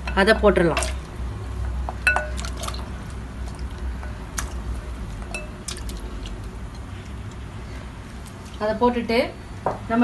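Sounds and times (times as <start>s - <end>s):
low steady hum: 0.0s - 10.0s
glass bowl clinking on metal: 2.0s - 2.5s, 5.3s - 5.6s
water splashes and plops: 2.1s - 4.7s.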